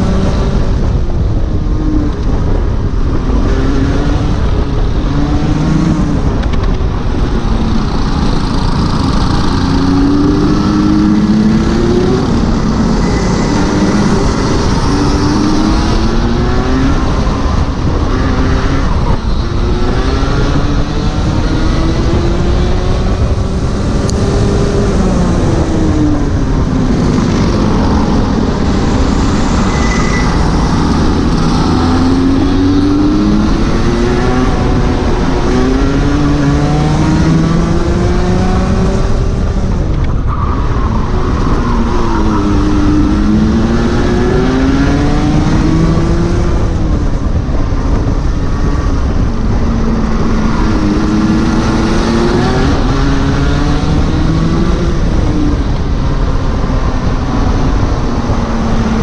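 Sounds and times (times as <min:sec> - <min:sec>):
two-stroke kart engine revving: 0:03.8 - 0:39.5.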